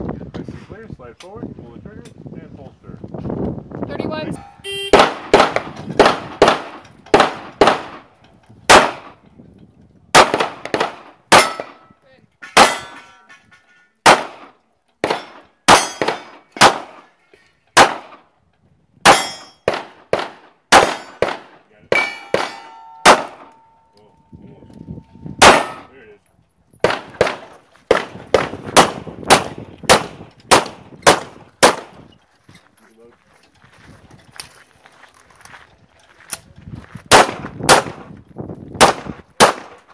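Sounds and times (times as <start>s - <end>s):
pistol shots: 4.9s - 8.1s, 8.7s - 9.2s, 10.1s - 11.8s, 12.6s - 13.0s, 14.0s - 17.0s, 17.8s - 18.2s, 19.0s - 23.6s, 25.4s - 25.9s, 26.8s - 32.0s, 37.1s - 38.1s, 38.8s - 39.8s
steel plates clanging: 12.4s - 14.0s, 19.1s - 19.6s, 22.0s - 24.3s.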